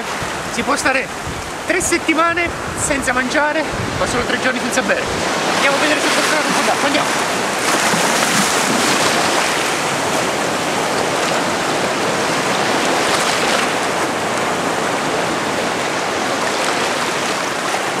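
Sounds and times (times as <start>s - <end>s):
surf washing: 0.0s - 18.0s
water splashing around legs: 5.6s - 10.3s.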